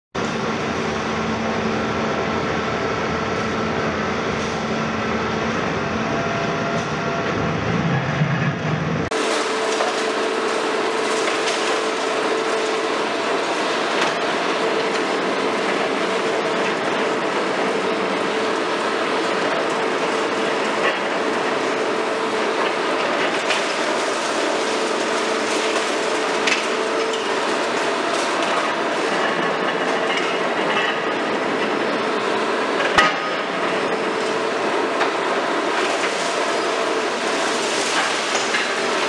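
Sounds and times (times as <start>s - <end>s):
excavator engine and hydraulics: 0.2s - 39.0s
hydraulic whine: 0.2s - 39.0s
concrete debris breaking and falling: 19.1s - 31.4s, 32.2s - 39.0s.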